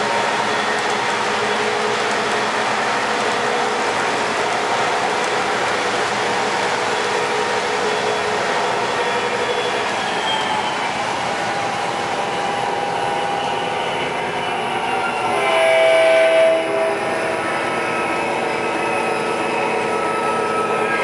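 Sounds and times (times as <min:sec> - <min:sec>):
locomotive horn blast: 0:15.3 - 0:17.4.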